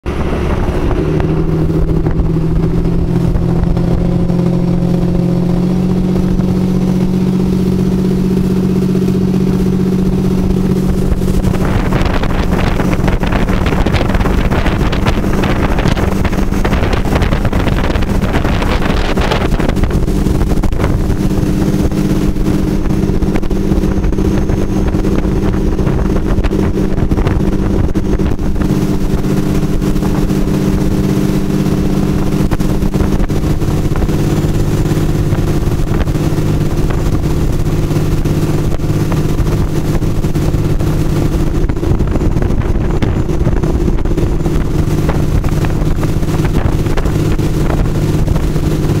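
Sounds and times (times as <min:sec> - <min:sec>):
boat engine running: 0:00.0 - 0:49.0
wind and water rushing: 0:00.0 - 0:49.0.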